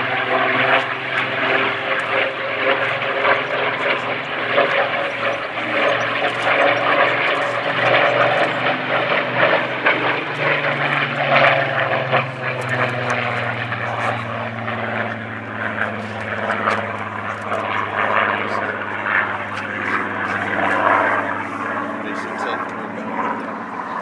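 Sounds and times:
propeller plane engine droning: 0:00.0 - 0:24.0.

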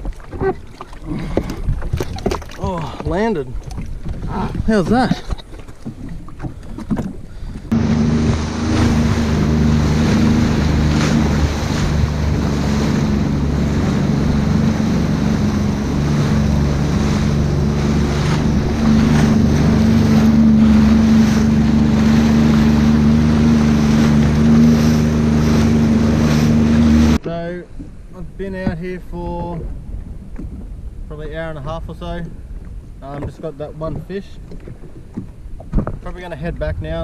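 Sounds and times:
rushing water: 0:00.0 - 0:28.4
wind: 0:00.0 - 0:37.0
jet ski engine running: 0:05.8 - 0:27.4.

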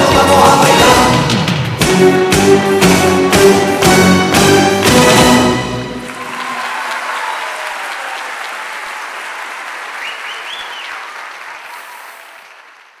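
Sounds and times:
audience applauding: 0:03.2 - 0:13.0.

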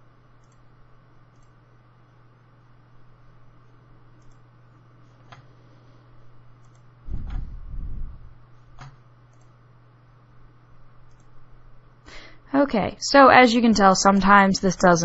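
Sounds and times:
faint electrical hum: 0:00.0 - 0:15.0
computer mouse clicking: 0:00.4 - 0:00.7, 0:01.3 - 0:01.6, 0:04.2 - 0:04.5, 0:05.2 - 0:05.5, 0:06.6 - 0:07.5, 0:08.6 - 0:09.6, 0:11.0 - 0:11.4
low muffled rumble: 0:07.1 - 0:08.4.

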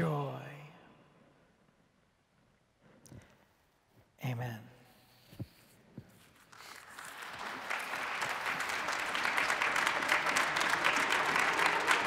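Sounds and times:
congregation applauding: 0:06.4 - 0:12.0.

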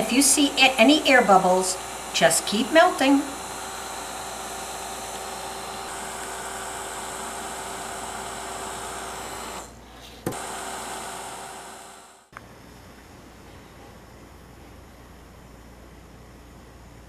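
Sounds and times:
heat gun blowing air: 0:00.0 - 0:12.3
faint motor whine: 0:00.0 - 0:17.0.

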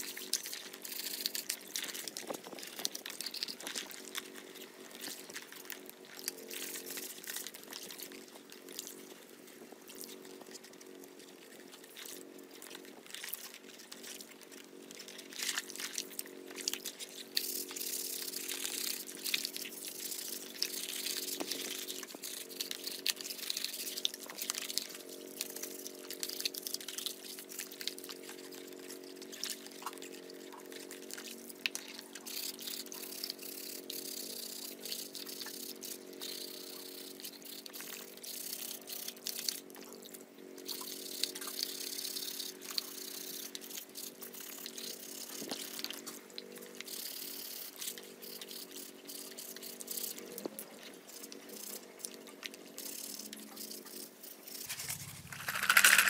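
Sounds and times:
low hum: 0:54.5 - 0:56.0
sponge scrubbing: 0:54.6 - 0:56.0.

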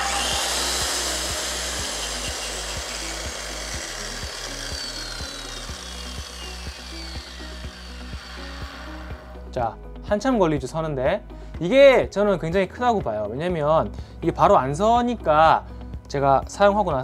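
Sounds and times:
circular saw blade whine: 0:00.0 - 0:09.5.

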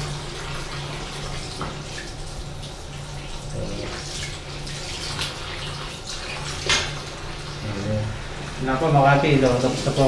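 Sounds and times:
water running from tap: 0:00.0 - 0:10.0.

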